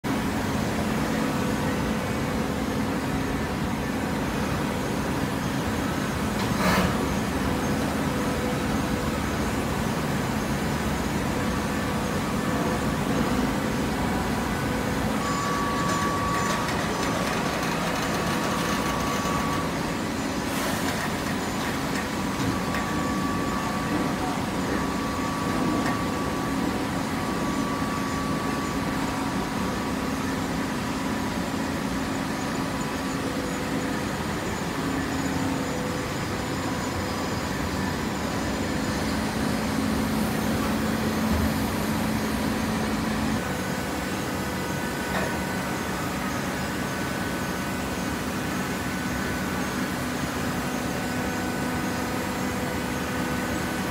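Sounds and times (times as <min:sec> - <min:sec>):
hydraulic press humming: 0:35.2 - 0:46.4.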